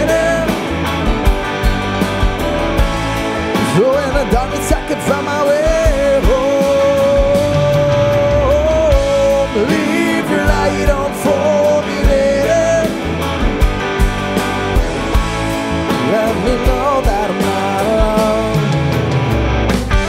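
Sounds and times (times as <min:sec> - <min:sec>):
bass guitar: 0:00.0 - 0:20.0
drums: 0:00.0 - 0:20.0
electric guitar: 0:00.0 - 0:20.0.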